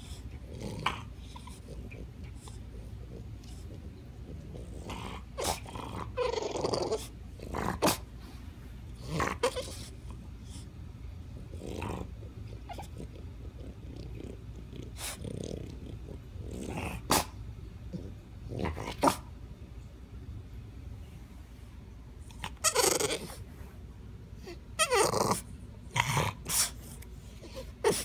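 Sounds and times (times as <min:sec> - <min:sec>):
dog whining and grunting: 0:00.0 - 0:08.0, 0:09.0 - 0:10.6, 0:11.5 - 0:19.3, 0:22.2 - 0:23.5, 0:24.4 - 0:28.0.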